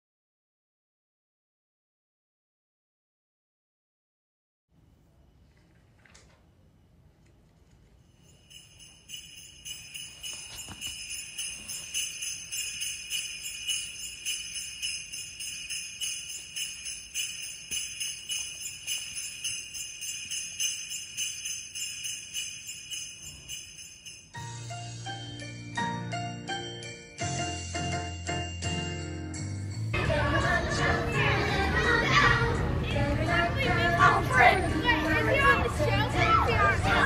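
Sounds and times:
jingle bells shaken: 8.1 - 25.8.

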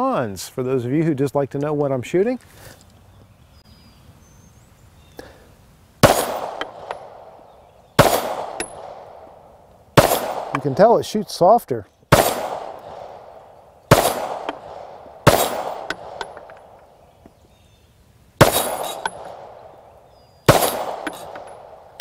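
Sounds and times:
pistol shots: 6.0 - 7.4, 8.0 - 9.4, 10.0 - 11.0, 12.1 - 16.5, 18.4 - 19.8, 20.5 - 22.0.

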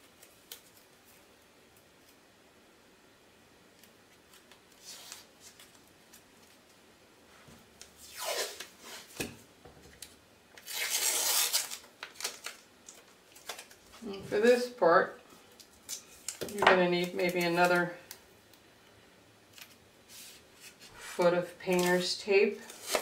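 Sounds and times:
tape ripping off roll: 8.0 - 9.4, 10.6 - 12.7.

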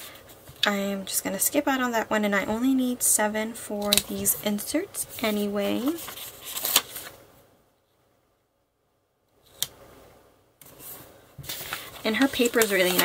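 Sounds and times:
paper sticker sheets rustling: 3.8 - 7.2, 10.7 - 13.0.

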